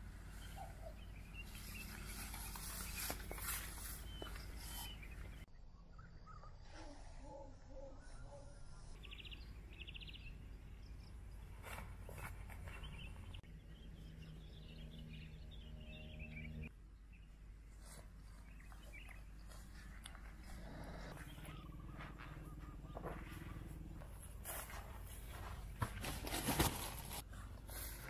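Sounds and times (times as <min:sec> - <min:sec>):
small bird chirping: 0:00.3 - 0:06.7, 0:07.8 - 0:17.3, 0:18.2 - 0:23.8
footsteps through dry grass: 0:01.4 - 0:05.4, 0:17.8 - 0:27.3.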